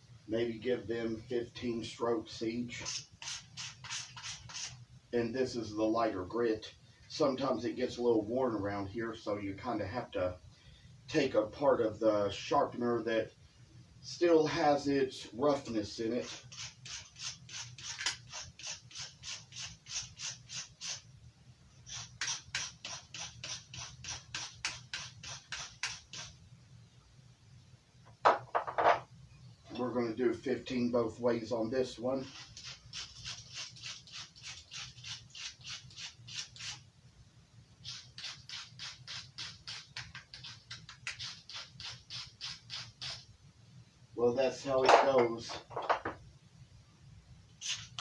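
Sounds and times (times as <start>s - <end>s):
knife scraping on sharpener: 2.8s - 4.8s, 16.2s - 21.0s, 21.8s - 26.3s, 32.2s - 36.8s, 37.8s - 43.2s.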